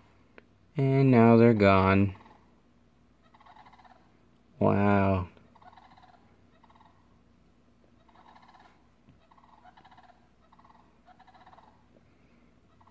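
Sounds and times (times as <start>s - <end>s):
sandhill cranes calling: 2.1s - 2.6s, 3.2s - 4.2s, 4.8s - 7.2s, 7.9s - 12.9s.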